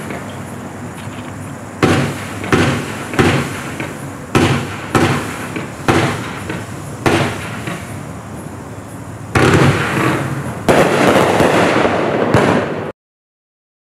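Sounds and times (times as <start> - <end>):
fireworks shots and bursts: 0.0 - 0.4, 1.8 - 8.3, 9.2 - 12.9
fireworks crackle: 0.0 - 8.1, 9.3 - 12.9.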